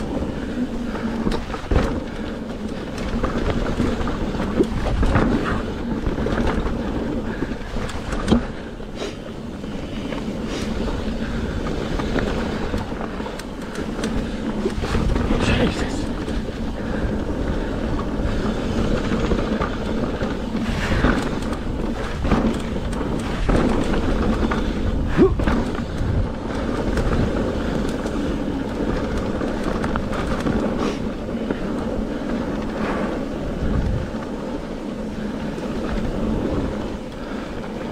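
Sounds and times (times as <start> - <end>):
bike rattling: 0.0 - 37.9
bike tyres rolling over dirt: 0.0 - 37.9
wind on microphone: 0.0 - 37.9.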